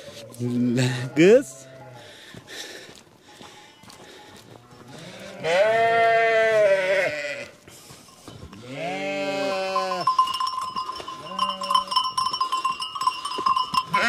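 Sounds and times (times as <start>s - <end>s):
sheep bleating: 0.0s - 2.1s, 4.6s - 7.6s, 8.6s - 10.2s, 11.2s - 12.0s.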